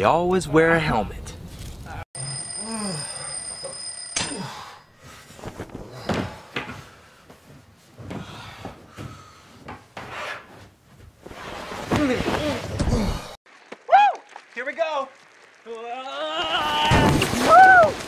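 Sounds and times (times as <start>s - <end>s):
high steady ringing tone: 2.2s - 5.0s.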